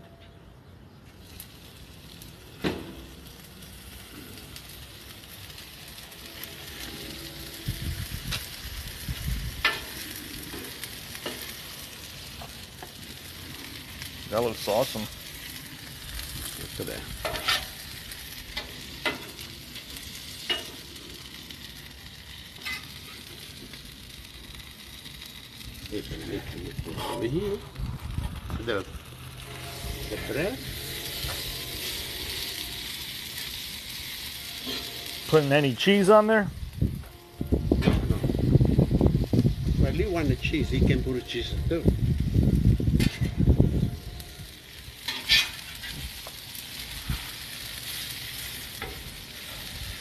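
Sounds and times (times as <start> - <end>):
meat sizzling on griddle: 1.1 - 50.0
metal spatula scraping: 17.2 - 17.8, 26.9 - 27.4, 29.4 - 33.1, 34.3 - 35.5, 43.0 - 43.4, 45.1 - 46.0.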